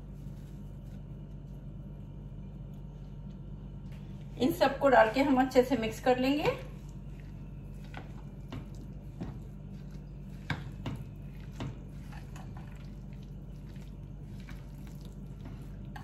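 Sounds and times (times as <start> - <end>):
steady low hum: 0.0 - 16.0
hand squishing wet batter: 6.2 - 16.0.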